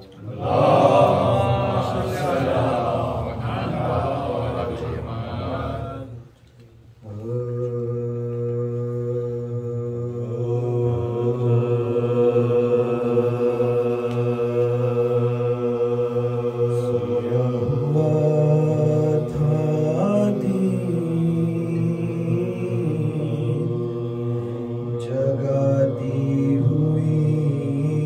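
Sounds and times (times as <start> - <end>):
men singing a cappella: 7.0 - 28.0.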